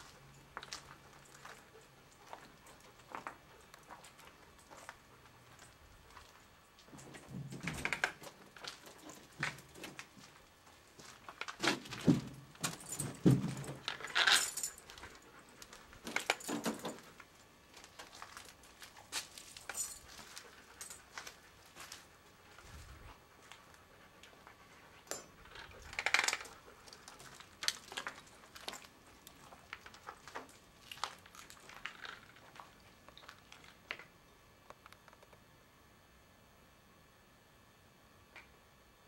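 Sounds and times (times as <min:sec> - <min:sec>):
footsteps crunching over debris: 0:08.4 - 0:14.2, 0:17.0 - 0:23.6, 0:26.8 - 0:33.9
small clinks and rattles: 0:11.0 - 0:22.0, 0:25.0 - 0:34.0.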